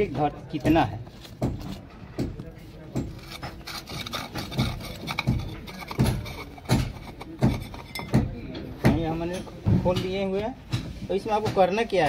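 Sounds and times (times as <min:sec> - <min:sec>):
knocks of pipe fitting twisted: 0:00.6 - 0:10.1.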